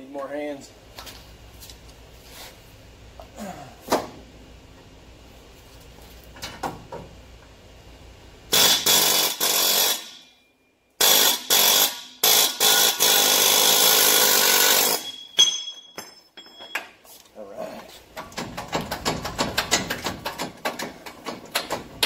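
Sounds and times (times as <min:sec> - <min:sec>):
pneumatic air hammer firing: 0:08.5 - 0:10.3, 0:11.0 - 0:15.4.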